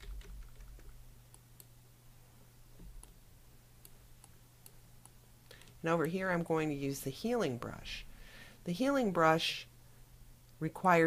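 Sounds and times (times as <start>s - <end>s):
faint low hum: 0.0s - 11.0s
computer mouse clicks: 2.8s - 3.2s, 3.8s - 6.2s.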